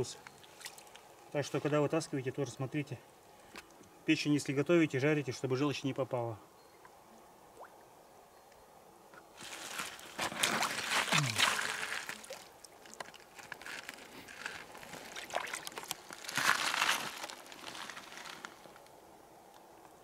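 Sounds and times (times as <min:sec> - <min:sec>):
hands splashing in water: 0:10.2 - 0:12.9, 0:15.1 - 0:17.0.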